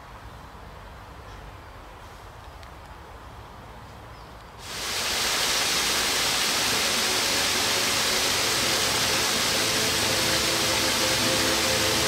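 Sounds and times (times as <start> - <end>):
faint sustained music notes: 4.6 - 12.0
waterfall rushing: 4.6 - 12.0.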